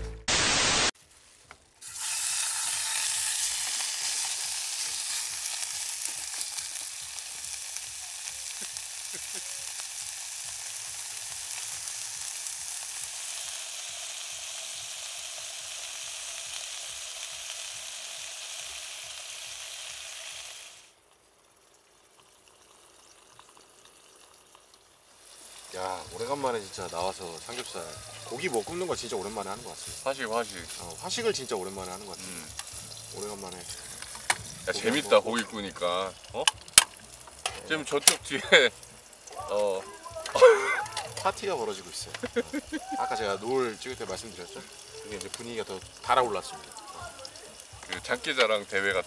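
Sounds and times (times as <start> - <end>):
loud burst of noise: 0.0 - 0.9
meat sizzling in a frying pan: 0.3 - 0.9, 1.8 - 21.0, 21.9 - 49.0.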